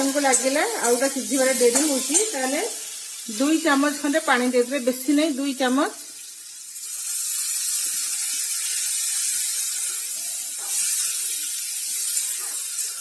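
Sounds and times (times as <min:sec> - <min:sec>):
sizzling hiss of steam: 0:00.0 - 0:05.0, 0:06.0 - 0:13.0
water splashing into hot oil: 0:06.0 - 0:13.0.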